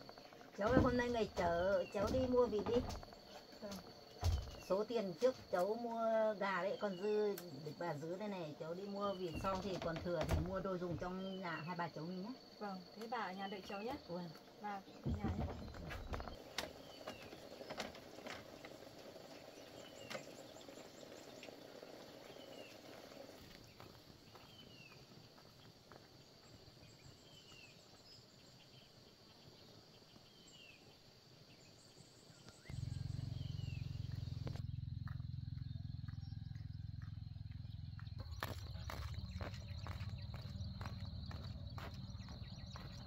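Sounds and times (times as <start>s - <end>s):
bird chirping: 0.0s - 43.0s
insect drone: 0.0s - 43.0s
low steady rumble: 32.6s - 43.0s.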